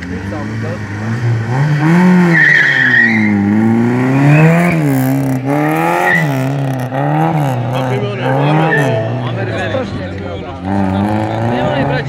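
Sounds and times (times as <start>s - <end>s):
rally car engine revving: 0.0s - 12.0s
tyres squealing: 2.2s - 3.5s.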